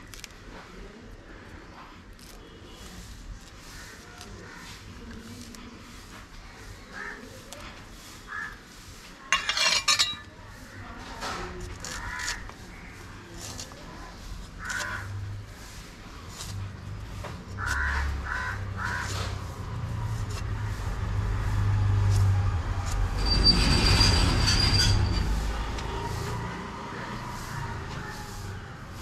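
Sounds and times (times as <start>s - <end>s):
thin high squeal: 23.1s - 25.5s.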